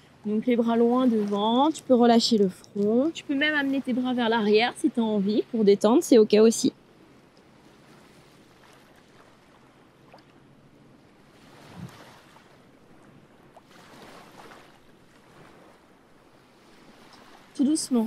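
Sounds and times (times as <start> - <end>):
sea waves on rocks: 11.2 - 12.6.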